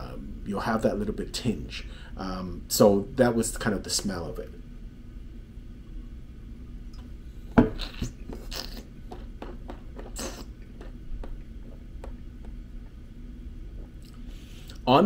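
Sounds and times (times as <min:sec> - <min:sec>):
metal mug knocking on wooden table: 0:07.6 - 0:07.8
wine slurping: 0:07.6 - 0:14.4
wet lip smacks: 0:07.7 - 0:12.2.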